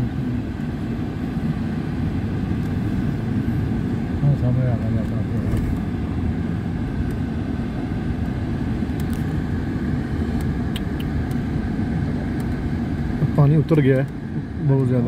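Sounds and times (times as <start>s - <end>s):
vehicle engine and road noise: 0.0s - 15.0s.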